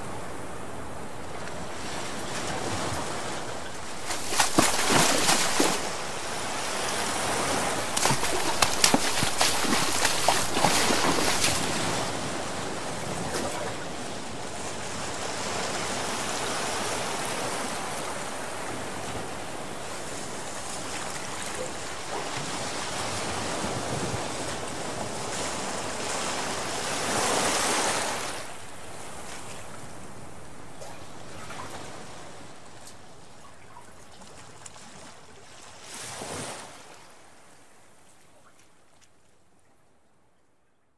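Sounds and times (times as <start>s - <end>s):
bathwater rushing: 3.9s - 6.0s, 7.8s - 12.0s.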